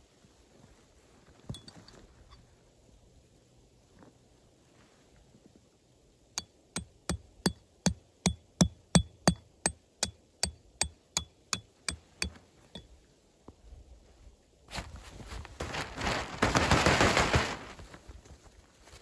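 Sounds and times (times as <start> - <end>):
hammer striking metal: 6.4 - 9.4, 10.0 - 12.4.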